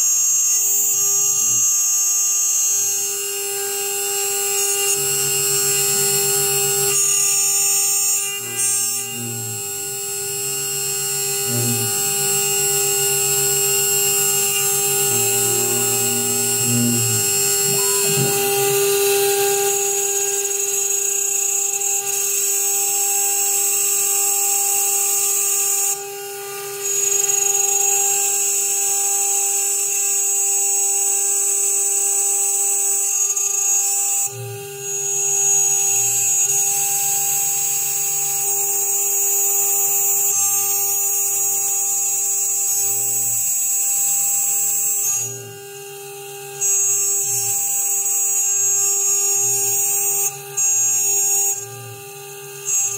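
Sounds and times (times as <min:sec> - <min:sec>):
router spindle whining: 0:00.0 - 0:52.9
low machine hum: 0:04.7 - 0:20.4.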